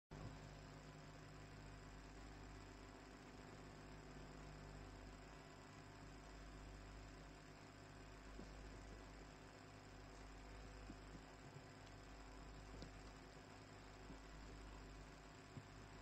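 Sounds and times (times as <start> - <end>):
electrical mains hum: 0.1 - 16.0.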